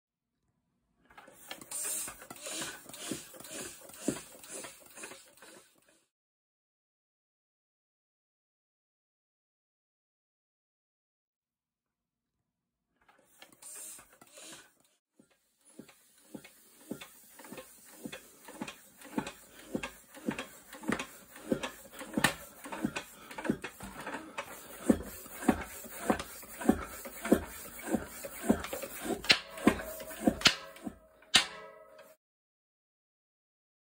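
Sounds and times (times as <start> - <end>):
floor pump strokes: 1.2 - 6.0, 13.1 - 32.2.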